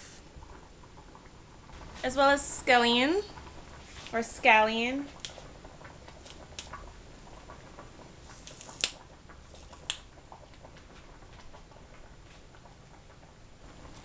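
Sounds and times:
faint steady hiss: 0.0s - 14.0s
clicks and taps in a pot: 8.5s - 13.2s.

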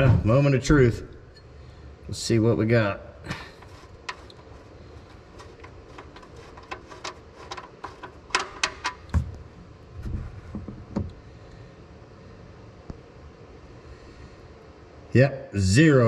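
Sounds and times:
drain plug clicks and taps: 5.4s - 9.3s.

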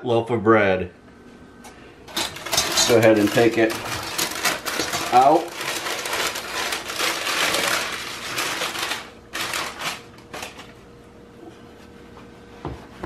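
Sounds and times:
parchment paper crinkling: 2.1s - 10.8s.

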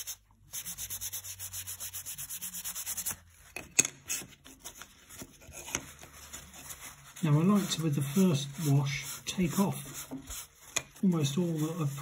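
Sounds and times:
paper towel rubbing on panel: 5.9s - 12.0s.

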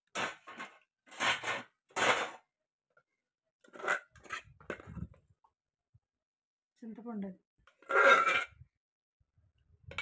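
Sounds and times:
measuring cup scraping in bowl: 7.7s - 8.7s.

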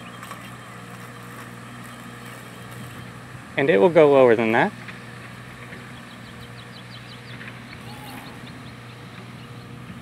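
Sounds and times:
low machine hum: 0.0s - 10.0s
bird chirping: 5.7s - 10.0s
faint high tone: 7.8s - 8.5s.

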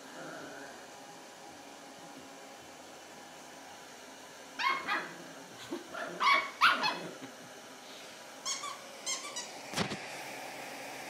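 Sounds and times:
puppy yipping: 4.6s - 5.1s, 6.2s - 7.0s, 8.4s - 9.5s
puppy barking: 4.6s - 5.2s, 5.9s - 7.2s.

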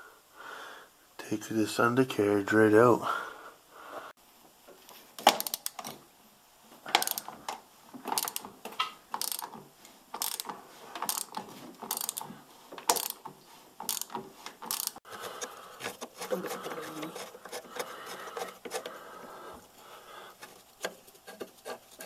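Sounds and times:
ratchet wrench clicking: 5.3s - 5.9s, 7.0s - 7.3s, 8.1s - 8.5s, 9.1s - 9.6s, 10.2s - 15.0s.

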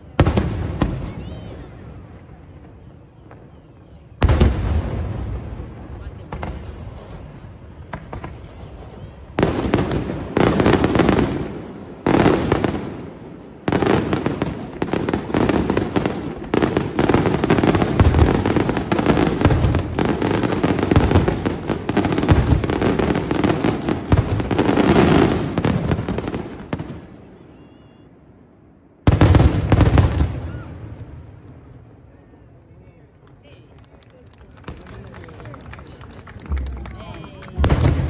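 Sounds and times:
rapid firework bangs: 4.2s - 27.1s, 29.0s - 31.9s, 37.4s - 38.0s.

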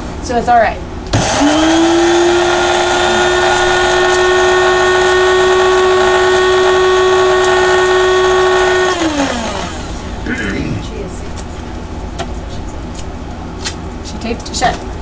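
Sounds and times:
coffee grinder whine: 1.2s - 10.1s.

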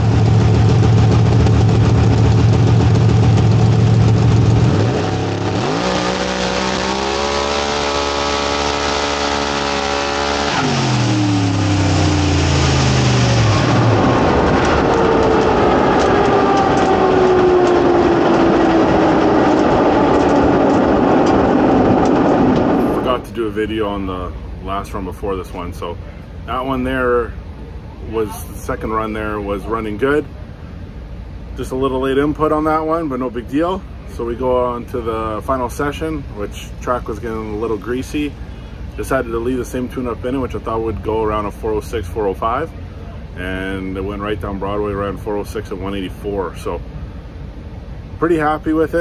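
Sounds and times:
racing car engine roaring: 0.0s - 24.5s
high engine whine: 0.0s - 49.0s.

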